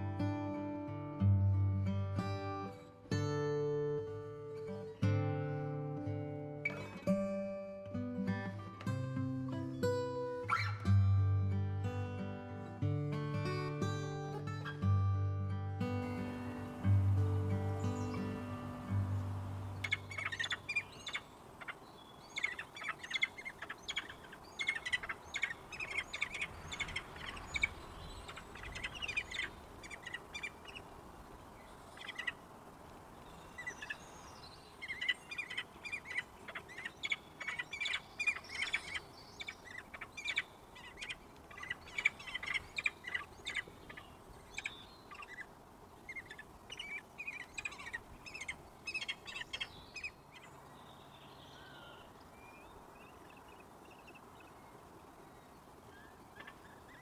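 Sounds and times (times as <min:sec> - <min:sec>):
falcon chick begging chirps: 0:10.5 - 0:10.8, 0:19.8 - 0:21.8, 0:22.4 - 0:30.8, 0:34.8 - 0:45.5, 0:46.1 - 0:50.5.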